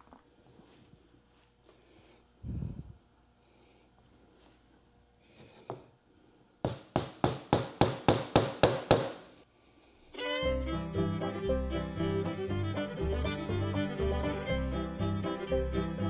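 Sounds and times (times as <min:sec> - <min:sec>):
hammer driving a nail: 0:06.6 - 0:09.3
fiddle and banjo music: 0:10.2 - 0:16.0.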